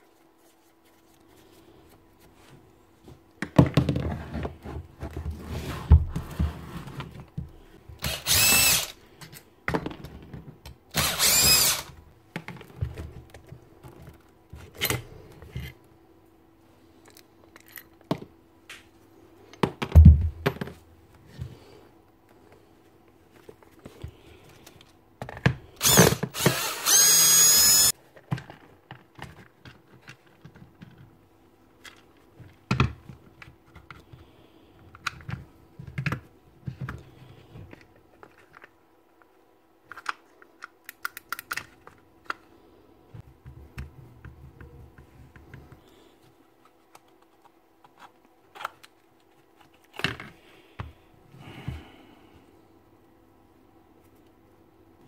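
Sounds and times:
power-tool motor whirring: 8.0 - 9.0, 10.9 - 12.0, 25.8 - 27.9.

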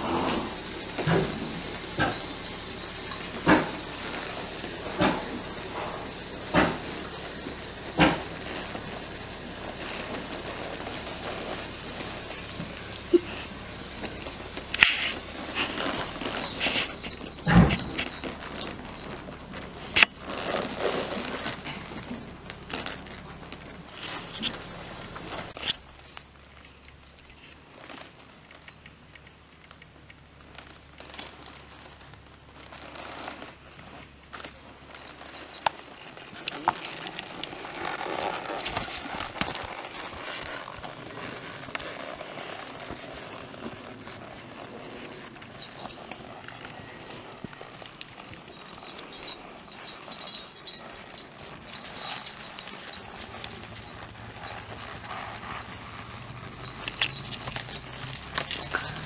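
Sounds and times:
hoof steps on dirt and straw: 0.0 - 59.0
tack rattling: 35.1 - 59.0.

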